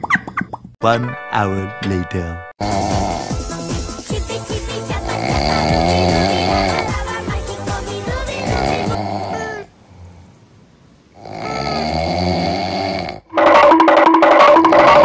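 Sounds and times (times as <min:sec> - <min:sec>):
snoring: 0:02.6 - 0:03.5, 0:04.9 - 0:07.1, 0:08.3 - 0:10.2, 0:11.2 - 0:13.3
loud repeating tonal sound: 0:13.3 - 0:15.0.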